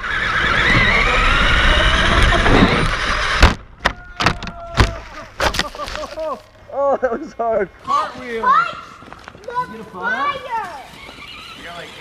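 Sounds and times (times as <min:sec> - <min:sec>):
toy truck motor whine: 0:00.0 - 0:03.5, 0:10.1 - 0:12.0.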